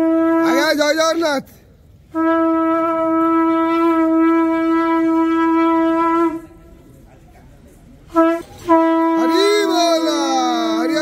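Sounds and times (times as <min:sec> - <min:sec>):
conch shell blast: 0:02.1 - 0:06.5, 0:08.1 - 0:09.8.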